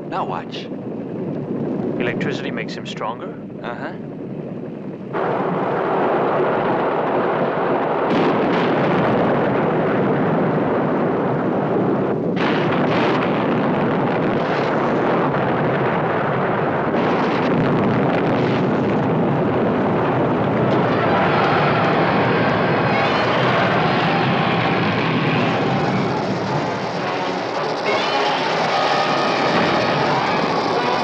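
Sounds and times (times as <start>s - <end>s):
forest fire roaring: 0.0s - 31.0s.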